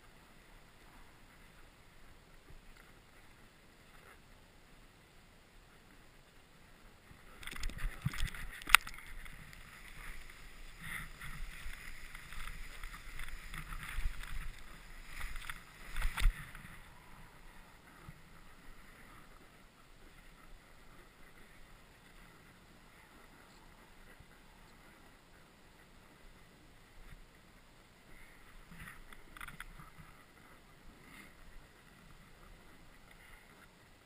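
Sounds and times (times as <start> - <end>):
low hiss: 0.0 - 34.0
snowboard swishing through powder: 9.3 - 17.5
gloved hand dragging in snow: 9.3 - 17.7.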